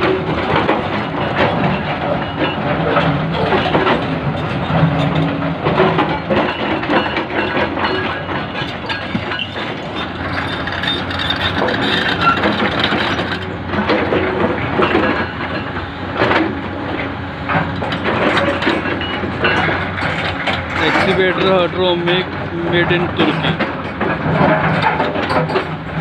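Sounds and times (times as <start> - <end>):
excavator engine under load: 0.0 - 26.0.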